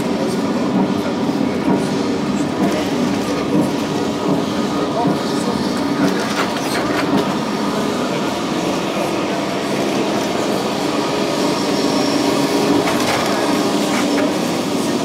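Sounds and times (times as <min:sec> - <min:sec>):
tram running on rails: 0:00.0 - 0:15.0.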